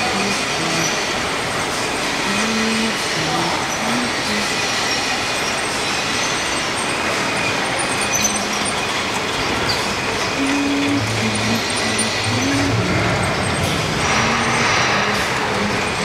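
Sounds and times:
bottling machinery running: 0:00.0 - 0:16.0.

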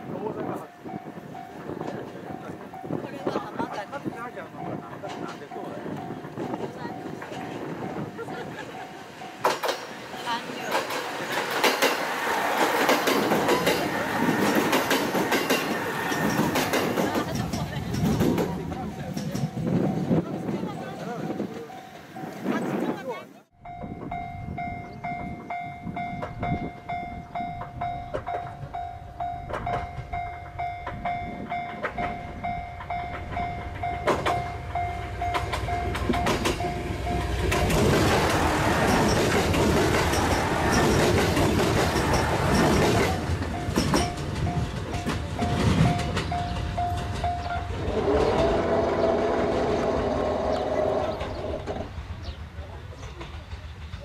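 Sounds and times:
train rumble: 0:00.0 - 0:54.0
railway warning signal pulsing: 0:00.1 - 0:22.9, 0:23.5 - 0:51.8
multi-tone train horn: 0:47.7 - 0:51.3.

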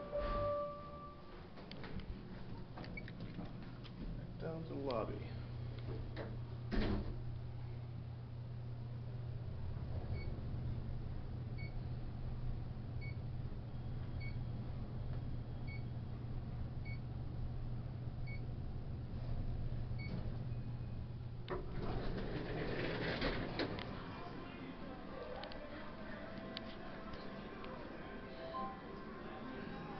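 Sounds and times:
elevator doors opening: 0:00.0 - 0:01.2, 0:21.4 - 0:24.1
elevator hum: 0:00.0 - 0:29.9.

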